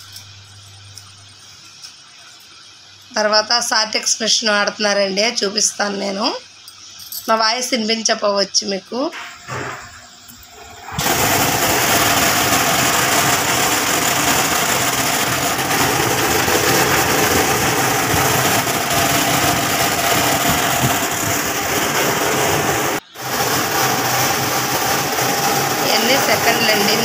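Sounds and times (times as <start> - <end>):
voice: 3.1 - 6.4, 7.3 - 9.2, 25.8 - 27.0
sorting machine running: 10.4 - 27.0.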